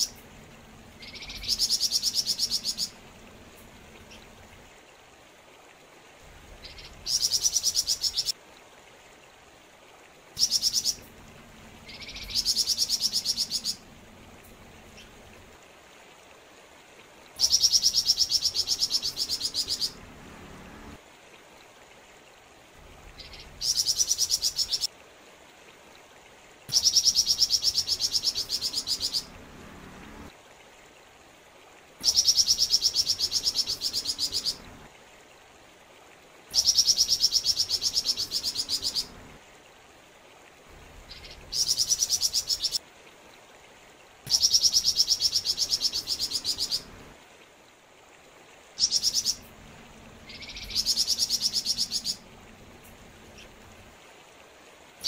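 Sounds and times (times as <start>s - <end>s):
stream running faintly: 0.0s - 55.0s
bird singing trilled phrases: 1.0s - 3.0s, 10.4s - 11.0s, 11.8s - 13.8s, 17.4s - 20.0s, 26.7s - 29.3s, 44.3s - 46.9s, 48.8s - 49.4s, 50.2s - 52.2s.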